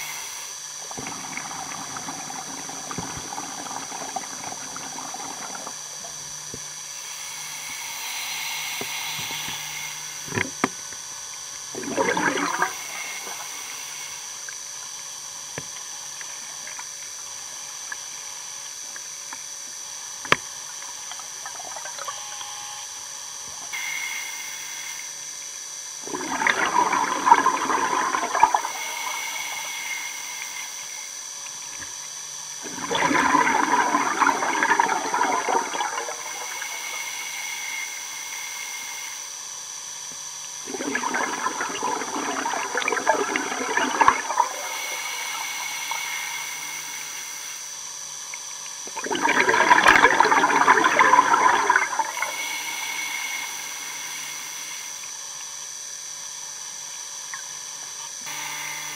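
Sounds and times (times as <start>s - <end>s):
hiss of inhaling through regulator: 0.0s - 2.0s, 6.9s - 10.3s, 12.1s - 14.5s, 27.5s - 31.2s, 33.5s - 39.3s, 44.4s - 47.8s
underwater exhalation bubbles: 11.8s - 12.8s, 26.0s - 28.7s, 32.6s - 36.2s, 40.7s - 44.6s, 48.9s - 52.1s.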